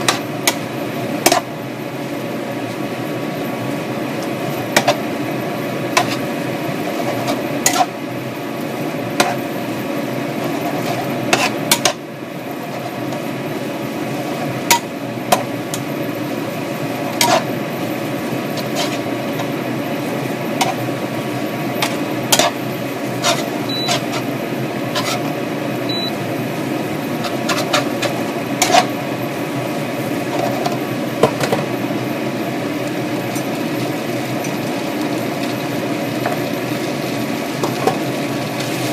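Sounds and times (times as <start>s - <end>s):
food sizzling hiss: 0.0s - 38.9s
spatula scraping frying pan: 5.9s - 8.0s, 9.1s - 9.6s, 10.2s - 12.0s, 12.6s - 13.3s, 16.9s - 25.4s, 27.1s - 29.0s.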